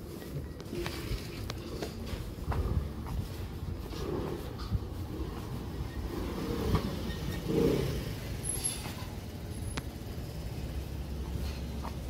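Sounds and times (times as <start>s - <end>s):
motor scooter passing by: 4.0s - 11.8s.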